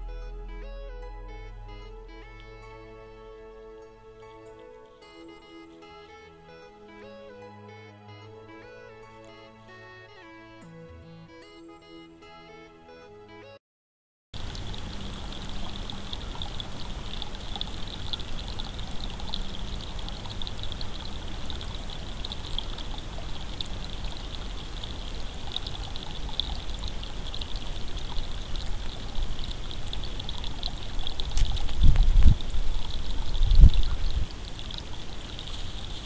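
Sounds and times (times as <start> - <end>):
creek trickling over stones: 14.4 - 36.0.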